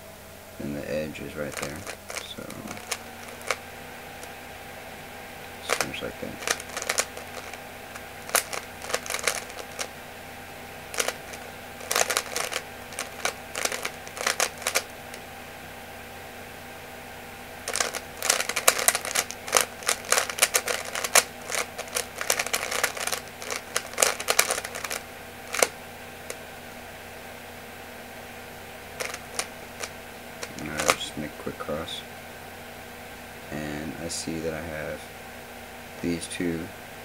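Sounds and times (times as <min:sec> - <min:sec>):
puzzle cube clicking: 0:01.5 - 0:03.6, 0:05.6 - 0:09.9, 0:10.9 - 0:14.9, 0:17.7 - 0:25.8, 0:29.0 - 0:31.0.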